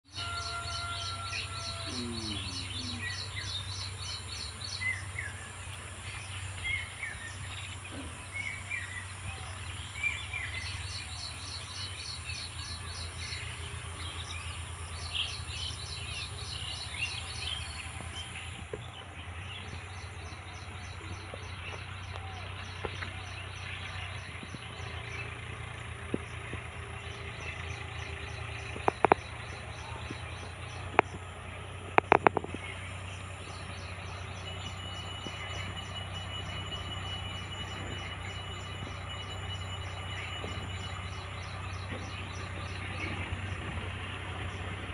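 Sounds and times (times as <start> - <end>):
insects calling in pulsed trains: 0.1 - 44.9
low steady hum: 0.1 - 44.9
sharp clicks: 28.7 - 31.3, 31.9 - 32.7.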